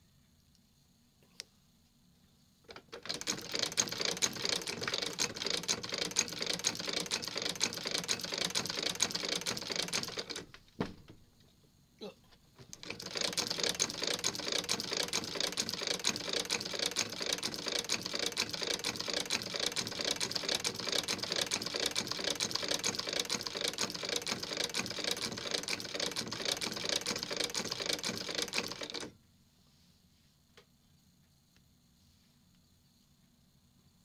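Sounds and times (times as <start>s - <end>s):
sewing machine clattering: 2.7s - 10.6s, 12.6s - 29.1s.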